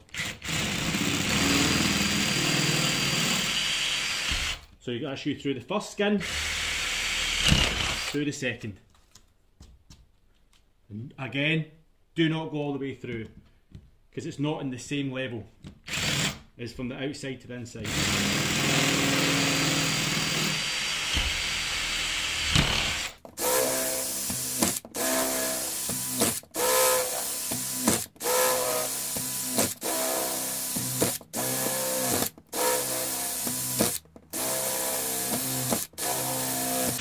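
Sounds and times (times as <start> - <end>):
power drill boring through plastic: 0.0 - 4.7, 6.2 - 8.2, 15.9 - 16.4, 17.8 - 37.0.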